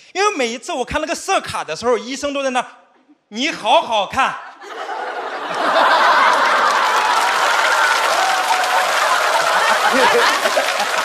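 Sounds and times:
audience laughing: 4.5 - 11.0
audience applauding: 5.4 - 11.0.

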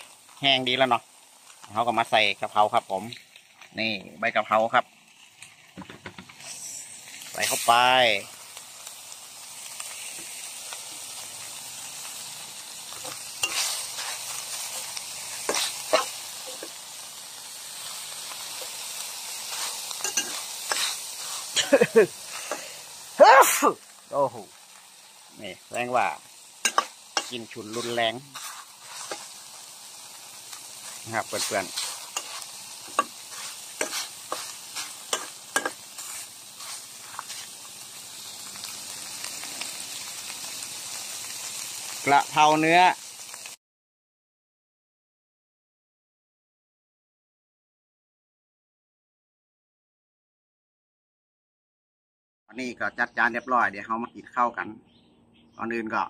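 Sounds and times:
meat sizzling in a wok: 0.0 - 43.6
metal spatula scraping wok: 6.3 - 7.8, 9.8 - 22.8, 26.6 - 37.9.

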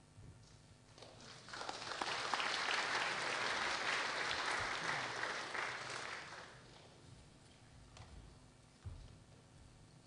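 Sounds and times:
audience applauding: 1.0 - 6.8.

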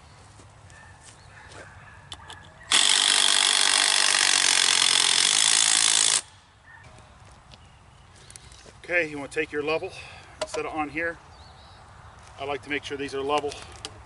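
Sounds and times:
power drill driving screw into wood: 2.7 - 6.3.

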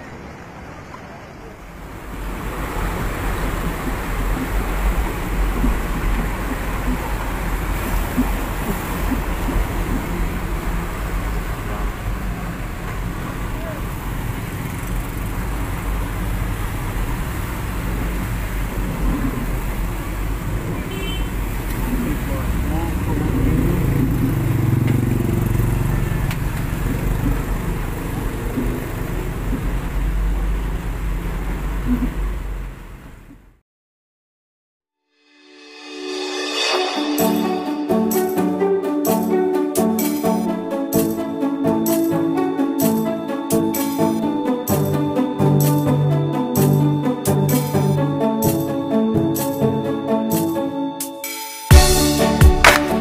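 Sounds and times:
water noise: 0.0 - 32.8
vehicle engine rumble: 0.0 - 33.6
water hissing: 2.0 - 11.7.

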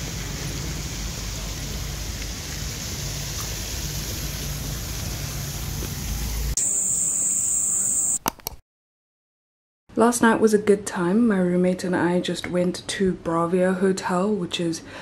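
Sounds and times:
low rumble and hiss: 0.0 - 6.6
night insects chirring: 6.6 - 8.2.

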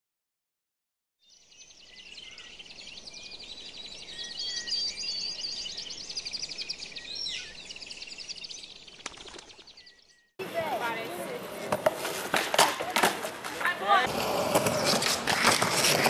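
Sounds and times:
birds chirping and trilling: 1.2 - 11.1.

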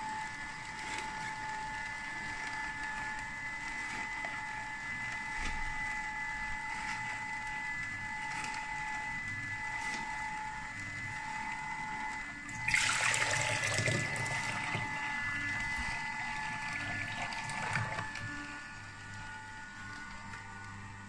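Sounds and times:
juicer motor humming: 0.0 - 21.0
juice splashing into plastic jug: 12.5 - 15.0.

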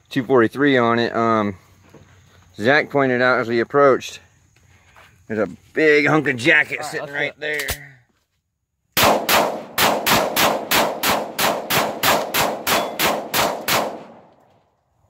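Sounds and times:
pistol shots with echo: 9.0 - 14.3.

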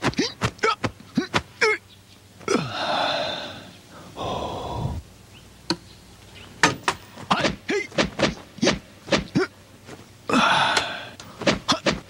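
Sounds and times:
person gasping breaths: 2.5 - 5.1, 10.3 - 11.4
person making sharp vocal sounds: 2.5 - 5.1, 10.3 - 12.0.

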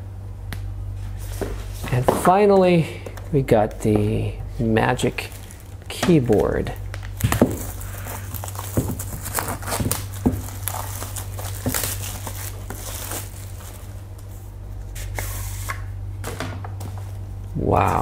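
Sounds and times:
steady low hum: 0.0 - 18.0
cardboard and paper tearing: 7.6 - 13.8.

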